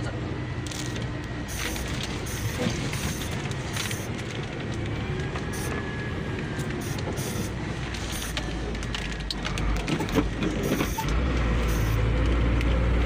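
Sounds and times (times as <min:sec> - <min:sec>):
truck diesel engine running: 0:00.0 - 0:13.0
cab rattles and clicks: 0:00.7 - 0:07.2, 0:07.9 - 0:11.2.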